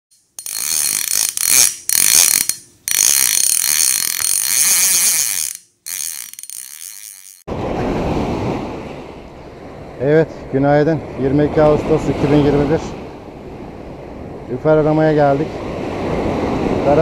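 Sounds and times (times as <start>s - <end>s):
wind: 0.1s - 17.0s
mechanical ratcheting whir: 0.2s - 7.5s
surf rushing: 7.5s - 17.0s.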